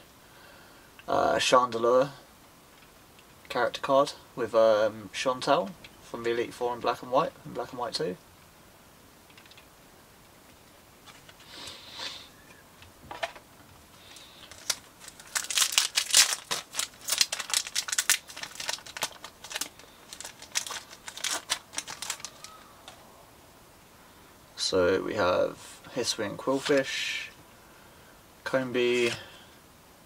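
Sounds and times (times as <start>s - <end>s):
foil wrapper crackling: 14.0s - 23.0s
foil wrapper rustling: 14.0s - 23.0s.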